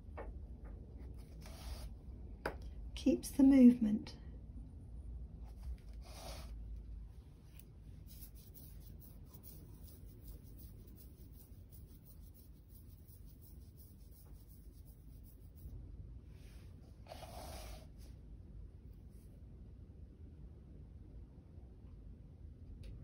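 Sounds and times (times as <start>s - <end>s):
scratchy handling noises: 1.0s - 2.0s, 7.3s - 15.7s.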